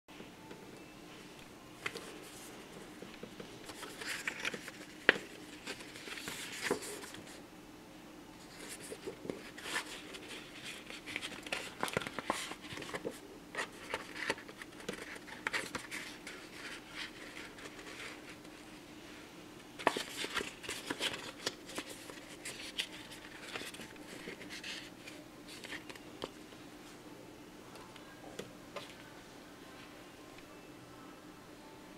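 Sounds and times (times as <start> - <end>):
card rustling: 1.8 - 7.4, 8.4 - 18.6, 19.8 - 26.4.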